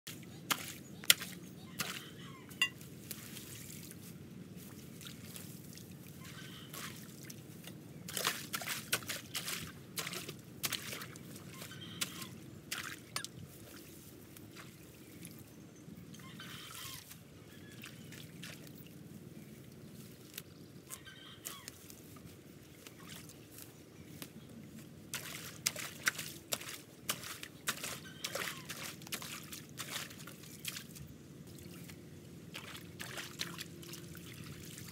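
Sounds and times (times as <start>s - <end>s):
water trickling in a channel: 25.2s - 34.9s.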